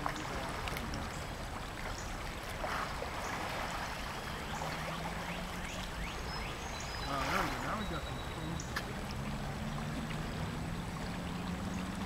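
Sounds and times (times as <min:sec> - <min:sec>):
river current rushing: 0:00.0 - 0:12.0.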